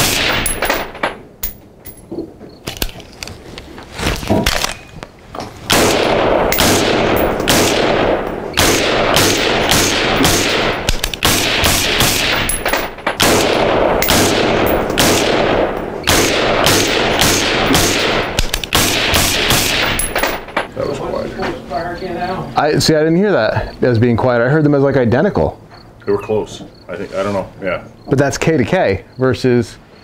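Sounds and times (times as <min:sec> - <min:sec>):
suppressed rifle shots echoing: 0:05.7 - 0:20.6.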